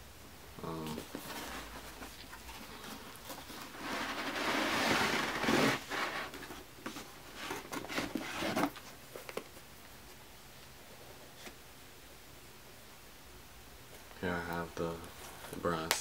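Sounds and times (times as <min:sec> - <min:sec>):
cardboard box rustling and crinkling: 0:01.0 - 0:09.5.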